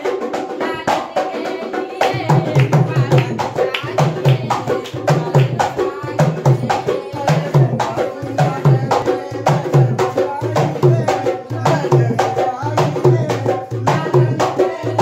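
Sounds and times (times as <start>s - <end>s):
person singing: 0.0s - 15.0s.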